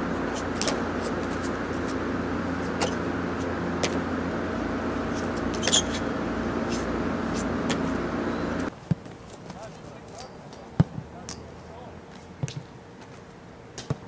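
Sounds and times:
steady low hum: 0.0 - 14.0
shoes scraping concrete wall: 0.2 - 4.1.

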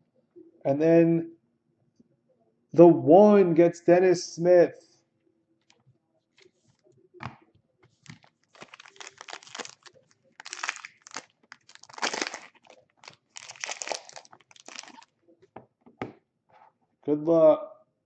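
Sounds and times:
plastic wrapper crinkling and tearing: 7.9 - 15.2.

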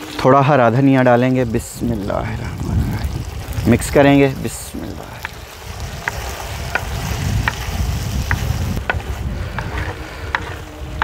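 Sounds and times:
food sizzling: 0.0 - 9.7
wooden spoon scraping pot: 8.8 - 11.0.

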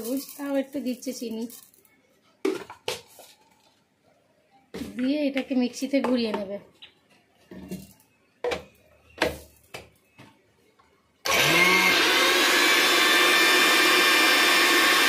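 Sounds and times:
mixer grinder motor whine: 11.2 - 15.0.

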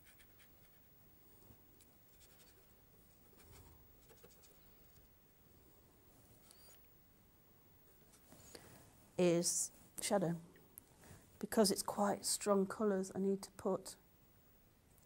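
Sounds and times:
paintbrush scratching on paper: 2.1 - 4.6.

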